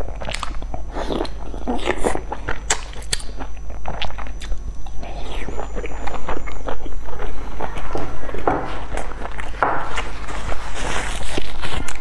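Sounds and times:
wet biting and chewing: 0.0s - 12.0s
mouth clicks and crackles: 0.2s - 7.0s.

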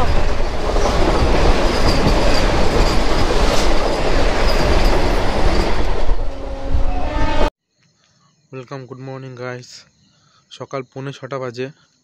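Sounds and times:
trains rushing past: 0.0s - 7.5s.

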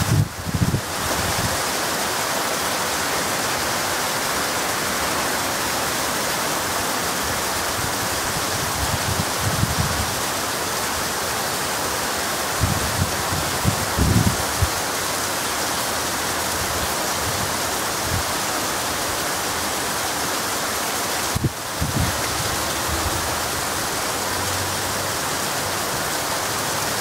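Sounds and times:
heavy rain pouring: 0.0s - 27.0s.

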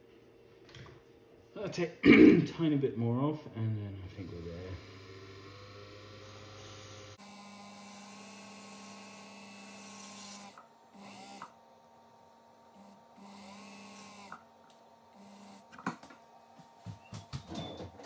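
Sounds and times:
lathe motor whirring: 4.1s - 16.9s.

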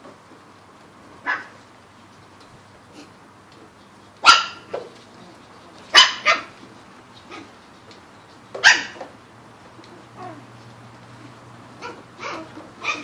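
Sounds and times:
puppies barking: 1.2s - 1.6s, 4.2s - 4.9s, 5.8s - 7.6s, 8.5s - 10.6s, 11.2s - 13.0s.

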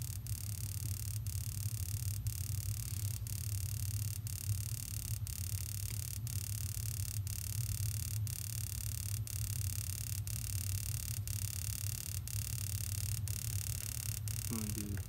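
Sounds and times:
low machinery hum: 10.2s - 15.0s.

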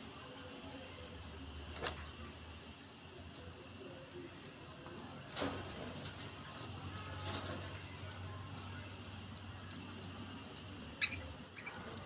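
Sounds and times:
faint budgerigar sounds: 10.6s - 12.0s.

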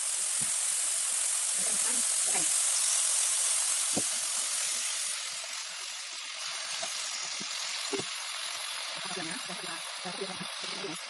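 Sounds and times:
food sizzling in hot oil in a wok: 0.0s - 11.0s.

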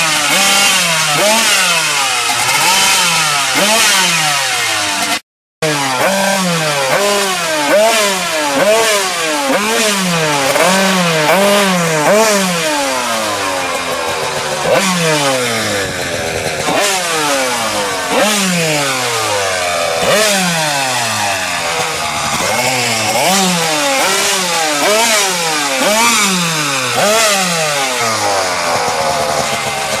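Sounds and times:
two-stroke engine revving: 0.0s - 30.0s.

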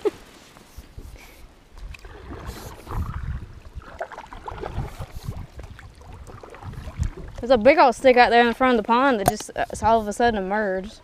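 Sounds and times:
paddle splashing in water: 1.9s - 7.8s.

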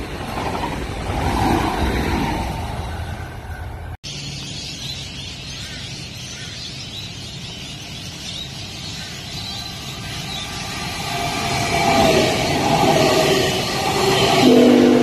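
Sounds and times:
electric train approaching: 0.0s - 5.4s, 7.3s - 15.0s
train whine: 9.2s - 15.0s.

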